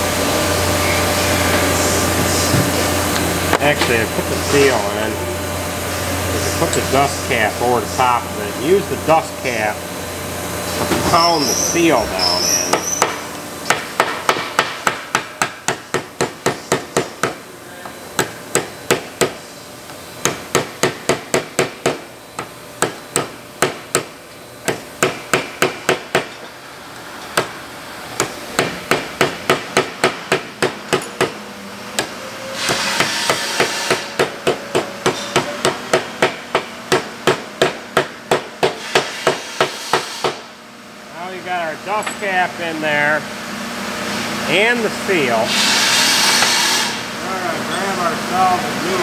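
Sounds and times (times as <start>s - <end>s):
hammer pounding metal: 28.2s - 31.4s, 32.0s - 40.4s.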